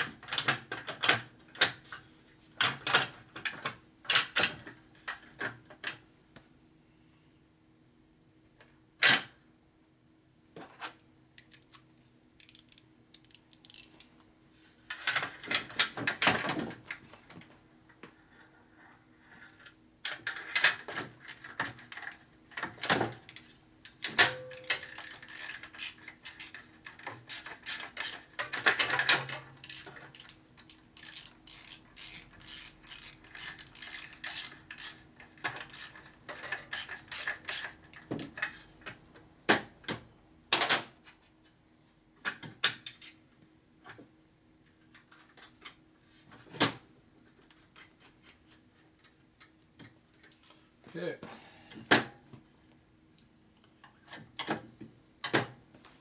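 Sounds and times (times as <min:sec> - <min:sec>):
metal hand tools clicking: 0:12.4 - 0:14.1, 0:24.1 - 0:26.6, 0:27.3 - 0:28.8, 0:29.6 - 0:35.0, 0:35.7 - 0:38.3.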